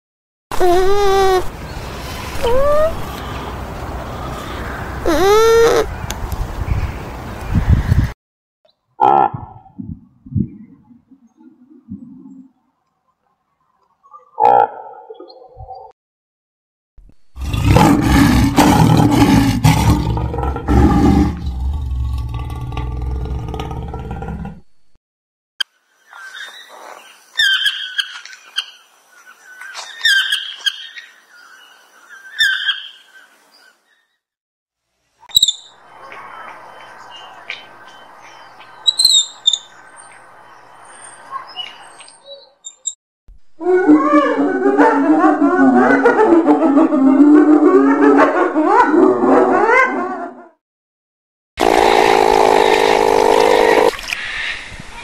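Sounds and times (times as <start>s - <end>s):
animal squeaks and chirps: 2.4s - 3.0s, 5.0s - 5.9s, 35.3s - 35.8s, 38.8s - 39.7s, 41.4s - 43.0s
lion roaring: 17.3s - 24.7s.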